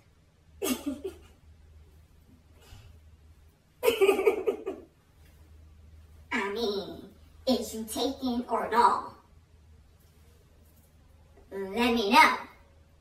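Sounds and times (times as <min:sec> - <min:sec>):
faint low hum: 0:00.0 - 0:13.0
woman laughing: 0:00.6 - 0:01.4, 0:03.8 - 0:04.9.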